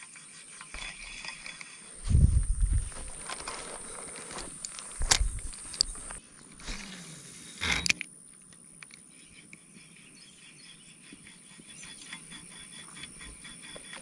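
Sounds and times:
rustling handling noise: 2.0 - 6.2
small ticks: 2.5 - 6.2.

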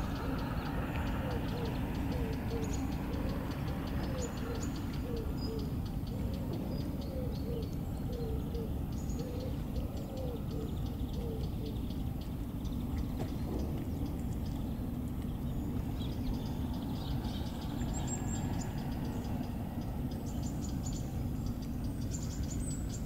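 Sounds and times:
dove cooing: 0.0 - 11.9
small birds chirping: 0.0 - 23.0
steady low rumble: 0.0 - 23.0.

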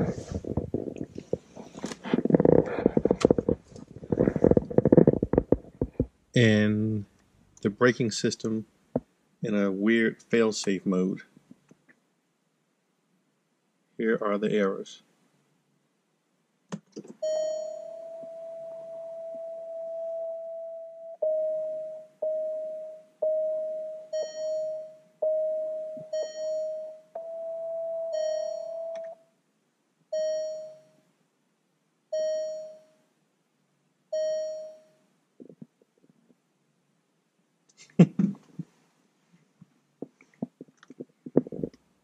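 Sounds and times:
car warning chime: 17.2 - 29.2, 30.2 - 30.8, 32.2 - 32.9, 34.2 - 34.9.

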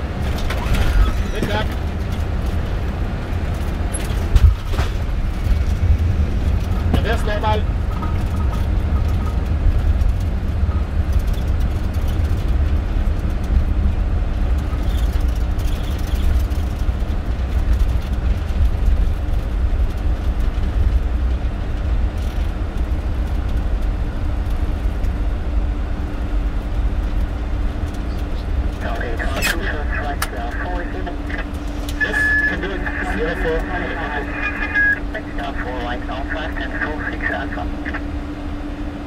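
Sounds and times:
jet engines running: 0.0 - 39.0
faint steady hum: 19.1 - 39.0.

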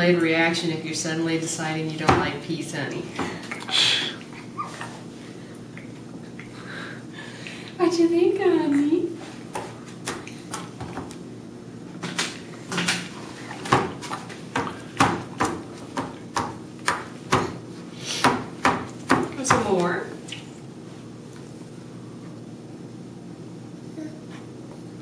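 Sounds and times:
hands slapping plastic tray: 9.5 - 11.2, 12.1 - 17.6.

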